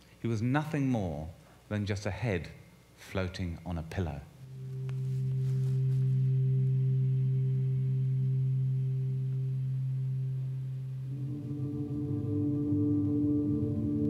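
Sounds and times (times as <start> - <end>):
low musical drone: 4.4 - 14.0.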